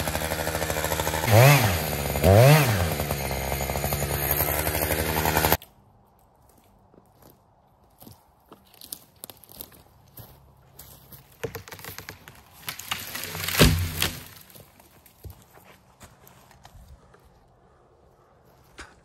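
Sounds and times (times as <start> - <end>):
dry branches crunching and crackling: 2.4 - 15.6.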